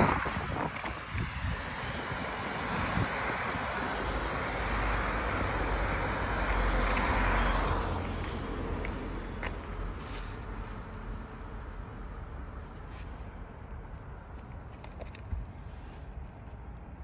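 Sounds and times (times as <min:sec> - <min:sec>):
car passing: 0:00.0 - 0:11.6.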